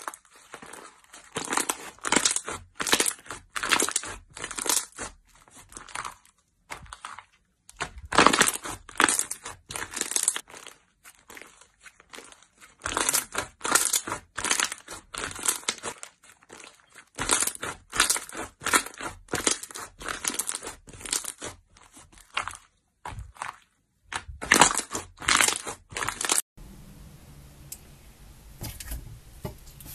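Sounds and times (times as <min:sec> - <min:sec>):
slime squishing: 0:00.0 - 0:26.4.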